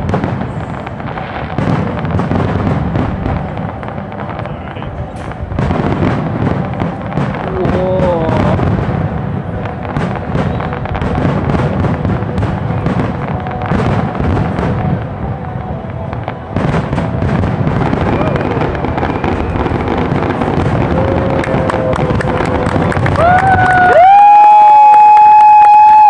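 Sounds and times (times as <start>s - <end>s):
fireworks booming and crackling: 0.0s - 26.0s.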